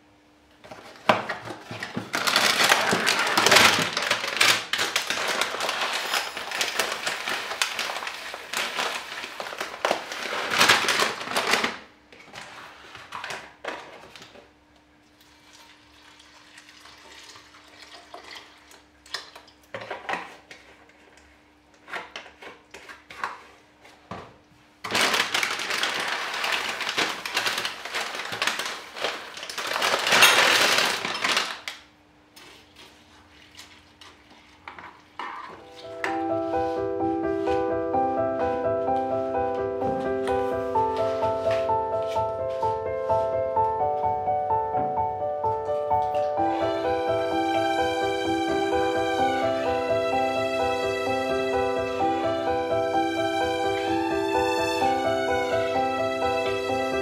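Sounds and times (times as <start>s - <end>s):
plastic bag rustling: 0.7s - 14.4s, 24.8s - 31.8s, 32.4s - 44.3s, 45.5s - 57.0s
milk pouring into bowl: 15.2s - 18.9s.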